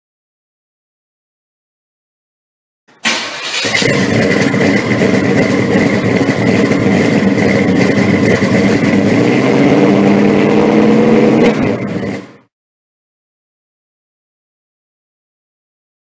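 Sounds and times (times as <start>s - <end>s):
car engine running: 3.0s - 12.5s.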